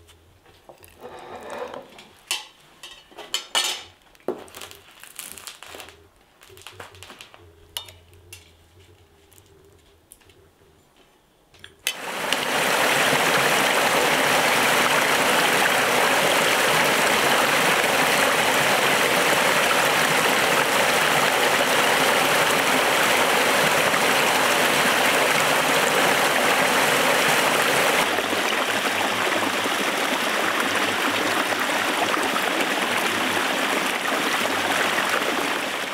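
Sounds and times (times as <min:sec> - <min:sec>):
rushing water: 0:11.9 - 0:35.9.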